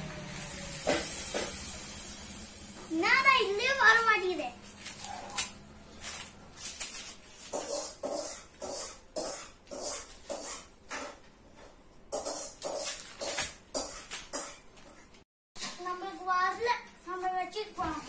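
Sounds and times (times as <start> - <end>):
paper rustling: 4.6 - 7.8
pencil scribbling on paper: 7.5 - 10.7, 12.1 - 12.9.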